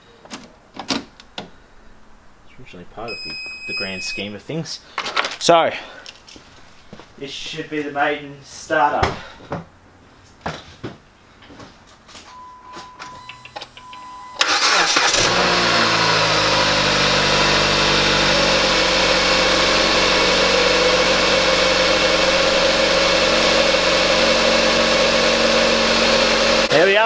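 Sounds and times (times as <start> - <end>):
car engine cranking and idling: 13.2 - 26.8.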